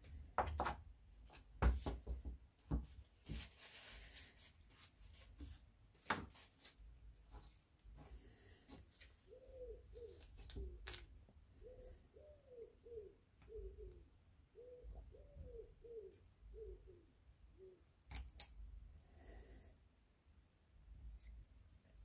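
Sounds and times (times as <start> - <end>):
pigeon cooing: 9.2 - 17.9.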